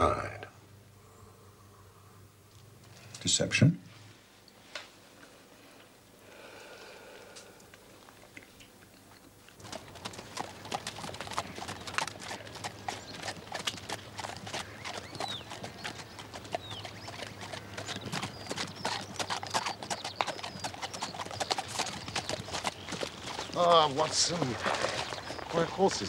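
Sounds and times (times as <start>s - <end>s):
horse hooves clip-clopping: 8.0s - 26.0s.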